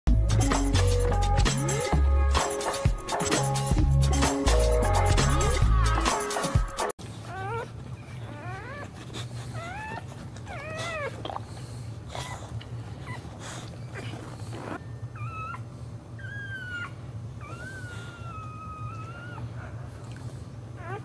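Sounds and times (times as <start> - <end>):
dog whining: 7.2 - 11.5, 12.1 - 19.9, 20.7 - 21.0.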